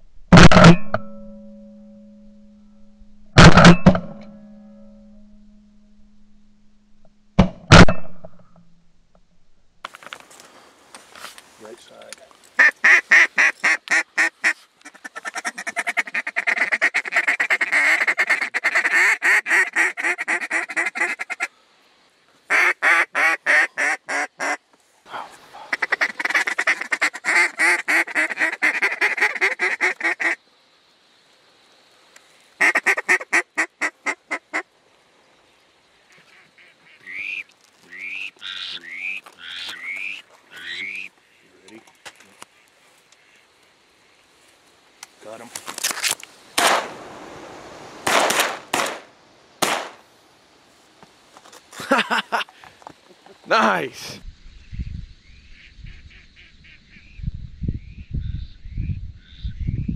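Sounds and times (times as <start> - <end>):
duck call clucking and quacking: 12.6 - 21.5, 22.5 - 24.6, 25.7 - 30.4, 32.6 - 34.6, 36.1 - 41.1.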